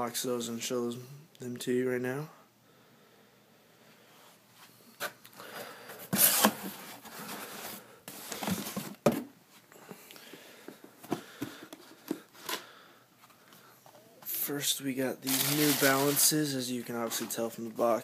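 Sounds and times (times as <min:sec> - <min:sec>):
cardboard rustling and scraping: 0:05.9 - 0:09.3, 0:15.3 - 0:17.6.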